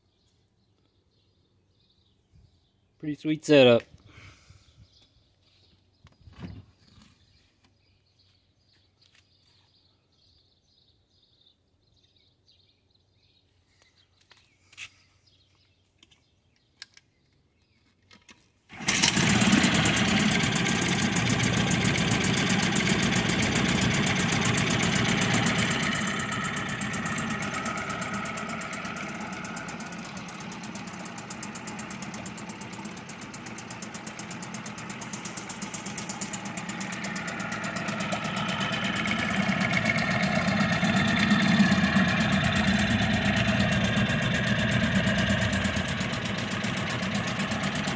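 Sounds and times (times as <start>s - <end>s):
outboard motor running: 18.7s - 47.9s.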